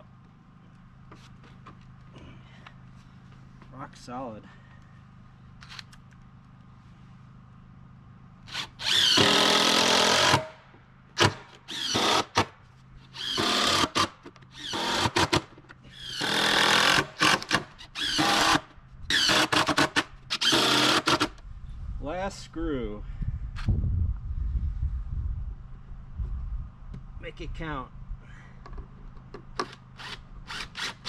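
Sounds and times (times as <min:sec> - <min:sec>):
cordless drill driving screws: 0:08.5 - 0:10.5, 0:11.2 - 0:12.5, 0:13.1 - 0:21.4, 0:29.6 - 0:31.0.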